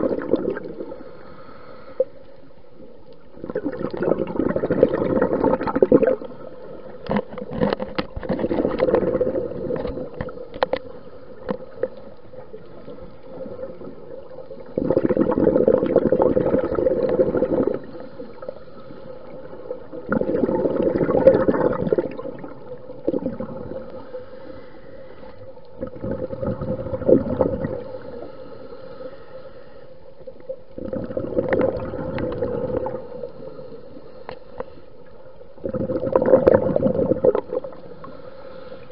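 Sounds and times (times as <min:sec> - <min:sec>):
air bubbling underwater: 0:00.0 - 0:01.0, 0:03.4 - 0:06.3, 0:08.4 - 0:10.2, 0:13.3 - 0:17.9, 0:19.8 - 0:23.8, 0:25.8 - 0:27.8, 0:30.8 - 0:33.0, 0:35.6 - 0:37.8.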